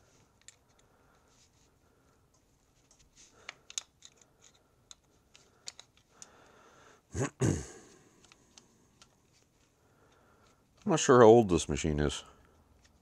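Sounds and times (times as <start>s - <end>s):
screwdriver clicking and scraping metal: 2.8s - 6.2s.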